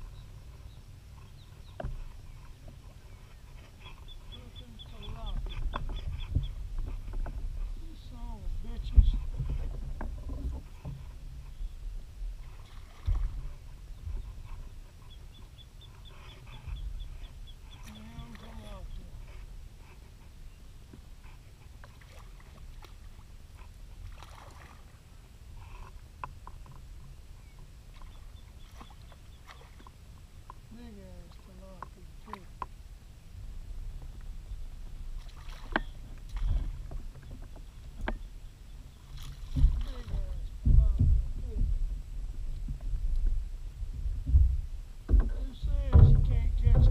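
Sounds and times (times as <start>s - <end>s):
wind rumble on microphone: 0.0s - 28.5s, 30.2s - 46.9s
handling noise in plastic kayak: 0.2s - 11.8s, 33.9s - 46.9s
low rumble: 39.4s - 46.9s
low thumps: 39.4s - 46.9s.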